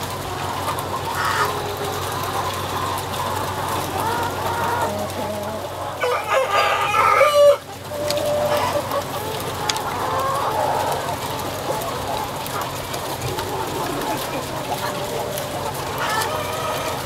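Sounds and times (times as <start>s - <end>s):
chickens clucking: 0.0s - 17.0s
rooster crowing: 6.0s - 7.6s.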